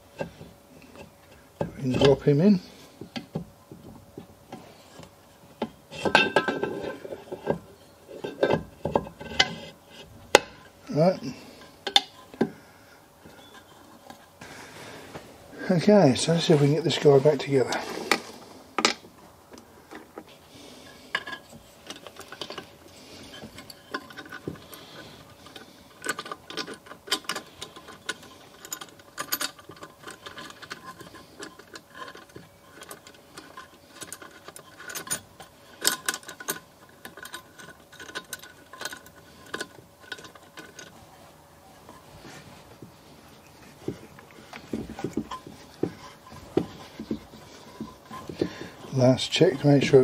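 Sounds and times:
metal engine parts clinking: 5.6 - 12.4, 20.8 - 41.0, 41.8 - 50.0.

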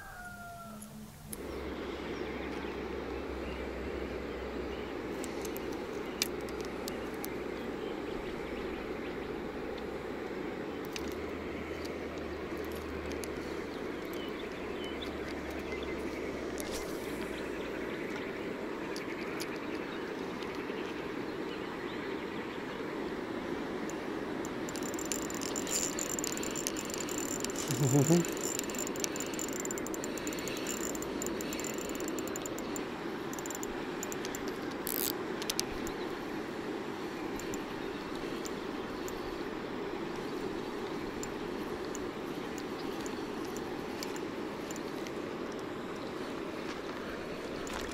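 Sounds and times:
small clicks: 5.2 - 7.4, 10.8 - 15.8, 23.9 - 36.1, 37.3 - 39.2, 40.2 - 46.1.

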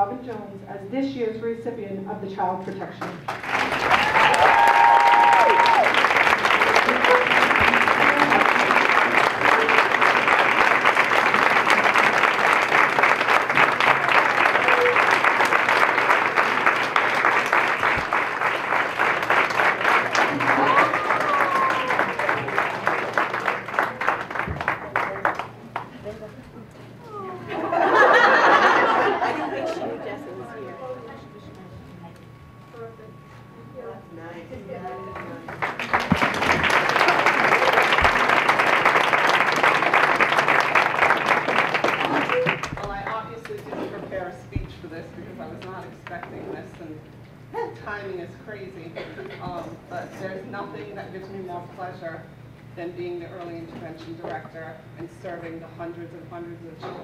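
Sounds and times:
audience applauding: 3.2 - 26.0, 35.0 - 43.1.

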